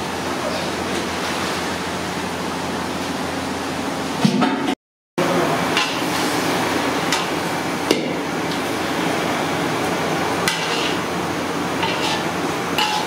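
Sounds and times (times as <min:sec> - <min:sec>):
fire and cooking food rushing: 0:05.2 - 0:13.0
metal ladle scraping iron pan: 0:10.5 - 0:11.0, 0:11.8 - 0:13.0.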